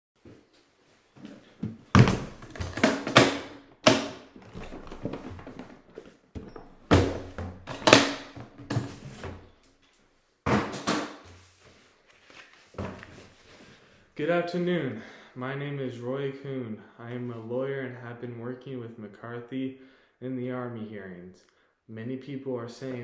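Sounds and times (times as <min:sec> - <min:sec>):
knocks and thumps on a table: 0:01.6 - 0:05.8, 0:10.5 - 0:11.2
papers rustling: 0:11.3 - 0:13.8.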